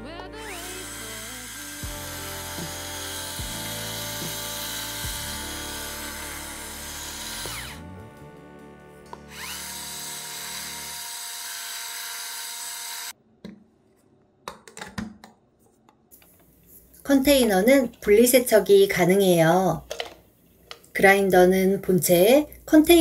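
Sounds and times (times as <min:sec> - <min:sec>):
electric spice grinder whirring: 0:00.4 - 0:08.0, 0:09.1 - 0:13.2.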